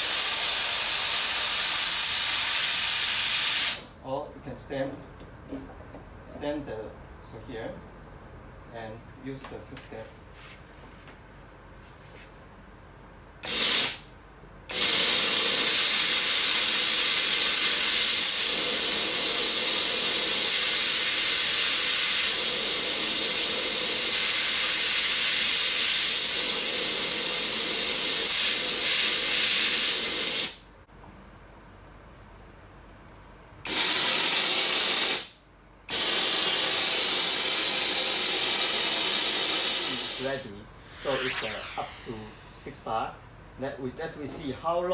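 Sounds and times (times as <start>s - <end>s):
steam hissing from cleaner wand: 0.0s - 3.9s, 13.4s - 14.0s, 14.7s - 30.6s, 33.7s - 42.3s.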